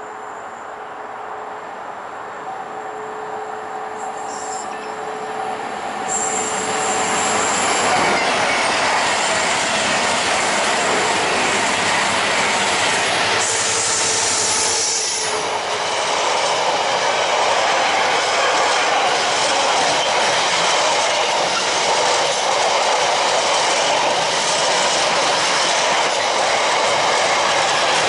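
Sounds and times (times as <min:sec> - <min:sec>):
diesel locomotive passing: 0:00.0 - 0:28.0
high-pitched wheel squeal: 0:04.0 - 0:05.2, 0:06.0 - 0:08.7.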